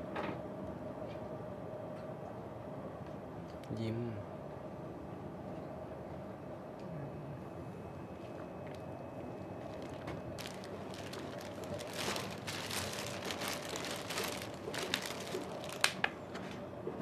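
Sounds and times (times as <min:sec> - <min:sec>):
plastic bag crinkling: 0:09.6 - 0:16.1
sharp crackling snaps: 0:09.8 - 0:16.2.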